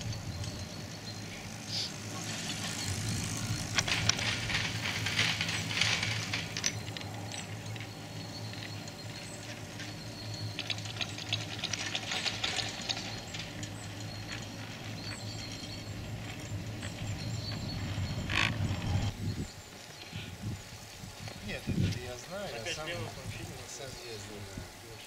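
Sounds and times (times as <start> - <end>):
chairlift cable hum: 0.0 - 24.2.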